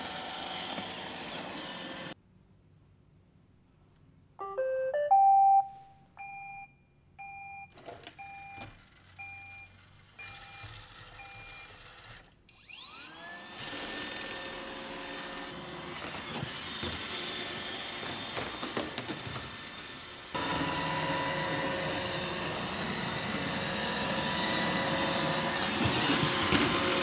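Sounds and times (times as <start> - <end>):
vacuum motor whirring: 0.0 - 2.2, 8.6 - 27.0
robot vacuum start-up tune: 4.4 - 6.3
quiet beeps: 4.4 - 8.6.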